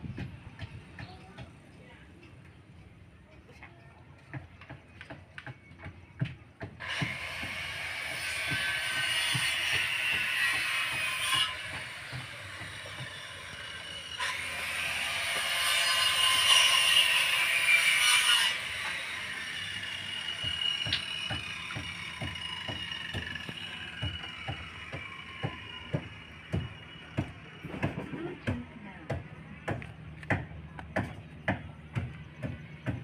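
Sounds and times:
hammering on timber: 0.0s - 1.6s, 4.3s - 14.5s, 18.6s - 33.0s.

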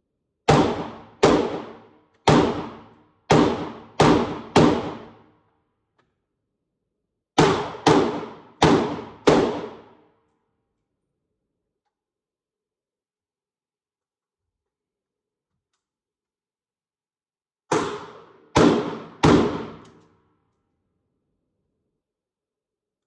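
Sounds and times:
rifle shots: 0.5s - 5.2s, 7.4s - 9.9s, 17.7s - 20.0s.

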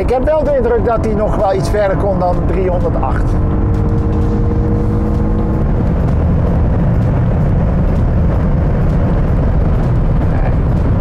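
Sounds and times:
wind and tyre roar in car cabin: 0.0s - 11.0s.

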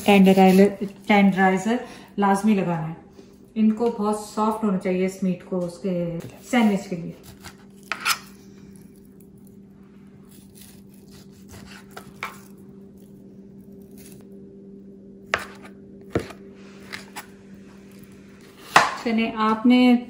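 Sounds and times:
low hum: 0.0s - 20.0s
knife slicing meat: 6.6s - 8.4s, 10.3s - 13.1s, 13.7s - 14.2s.

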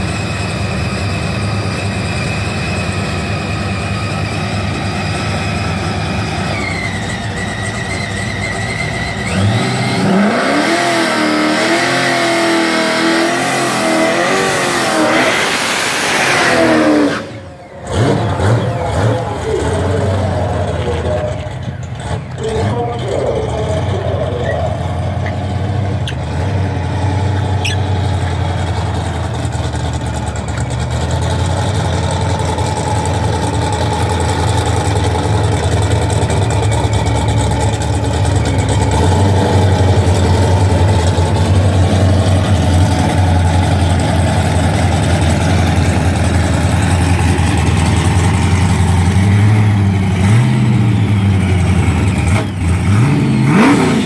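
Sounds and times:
car engine idling: 0.0s - 10.6s, 16.7s - 53.8s
engine revving: 0.0s - 29.8s, 30.6s - 54.0s.

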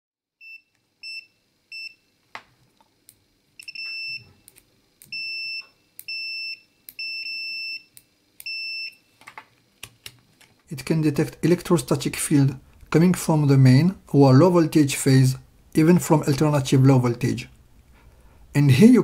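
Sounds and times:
multimeter buzzer beeping: 0.4s - 2.1s, 3.6s - 9.1s.

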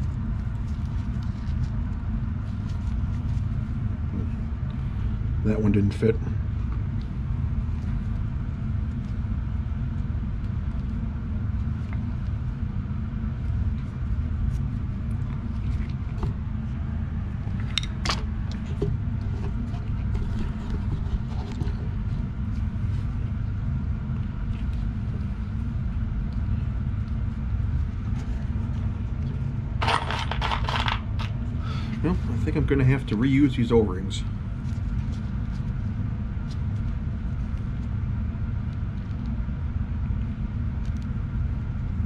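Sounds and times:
low background rumble: 0.0s - 42.0s
small parts rattling: 29.8s - 31.3s.

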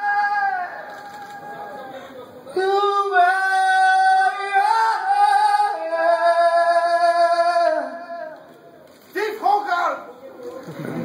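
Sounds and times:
man singing long notes: 0.0s - 0.8s, 2.5s - 8.4s.

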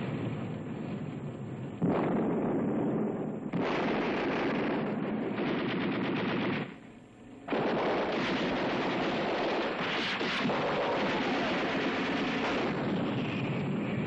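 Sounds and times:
machine-gun fire: 1.8s - 6.8s, 7.5s - 13.6s.

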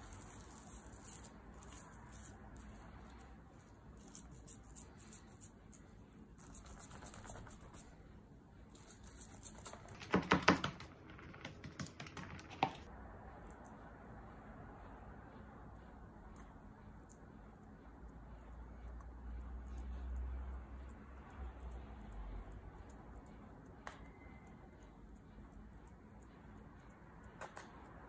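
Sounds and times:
fingers patting dough in tray: 8.8s - 12.9s.

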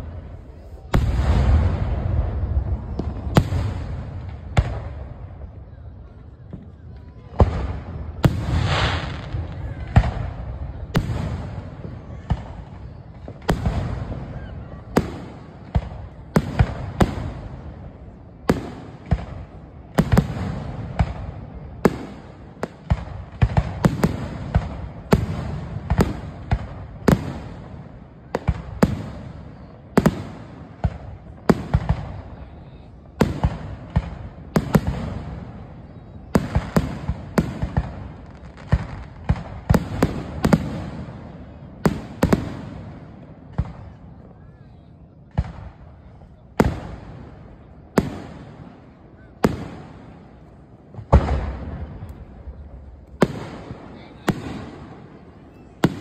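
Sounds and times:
fireworks bursting with bangs: 0.0s - 56.0s.

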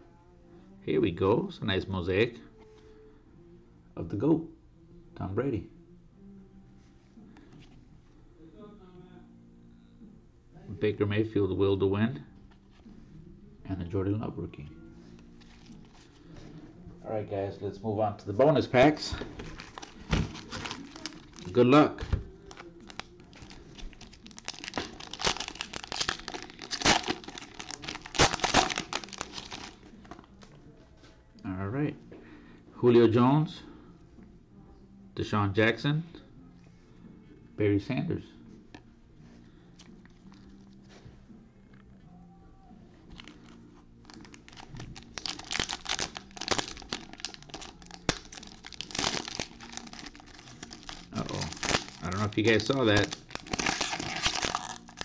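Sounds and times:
foil wrapper crinkling and tearing: 19.4s - 30.3s, 43.2s - 55.0s.

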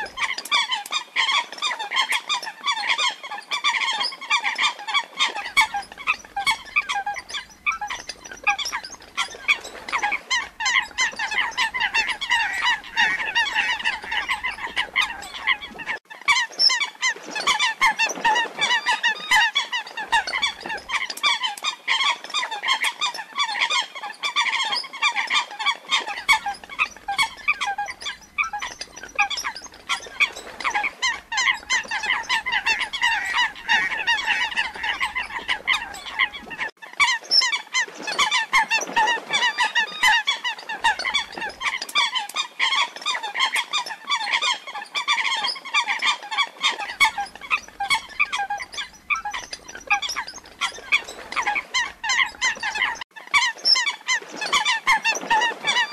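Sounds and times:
coot calls: 9.4s - 16.0s, 30.2s - 36.5s.

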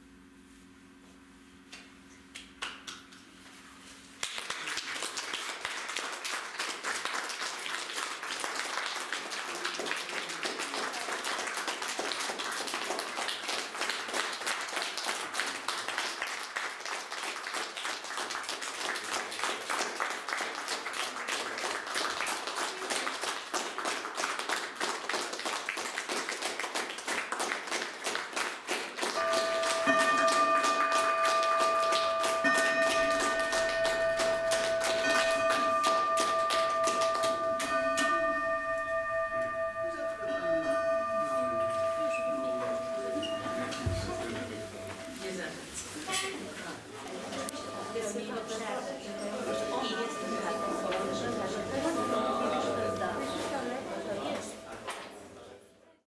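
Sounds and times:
audience applauding: 4.2s - 38.6s
ringing multi-pitched tone: 29.2s - 45.2s, 47.5s - 54.3s.

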